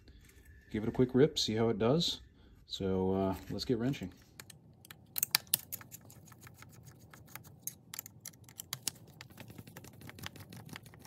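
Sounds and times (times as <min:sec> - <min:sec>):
small irregular clicks: 0:04.4 - 0:11.0.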